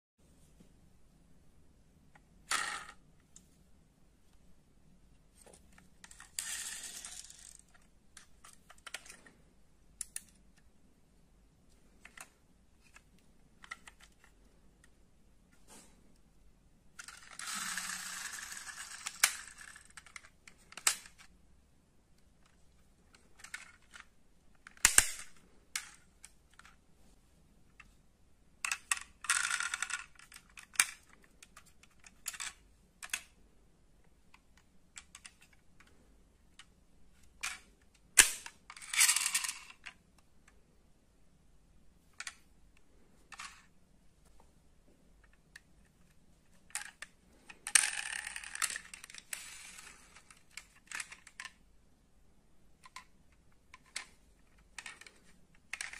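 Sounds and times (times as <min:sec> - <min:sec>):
toy cars clinking and rattling: 0:06.0 - 0:09.3, 0:17.0 - 0:21.3, 0:28.6 - 0:33.4, 0:37.4 - 0:40.0, 0:46.6 - 0:51.6, 0:53.7 - 0:55.9
metal toy cars clicking: 0:17.0 - 0:21.3, 0:22.4 - 0:26.8, 0:28.6 - 0:33.4, 0:46.6 - 0:51.6, 0:53.7 - 0:55.9.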